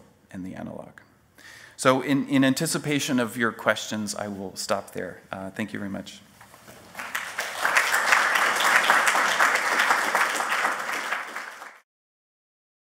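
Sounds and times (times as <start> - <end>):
audience applauding: 6.8 - 11.8.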